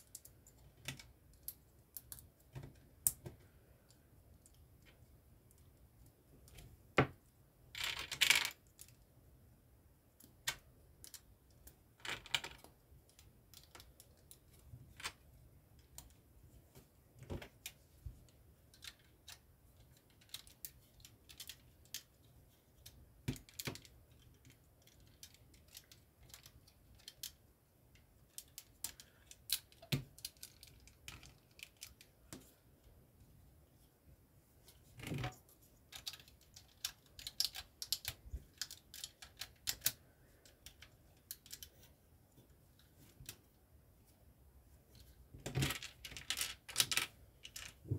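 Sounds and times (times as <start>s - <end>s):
plastic bricks clicking: 45.4s - 47.8s.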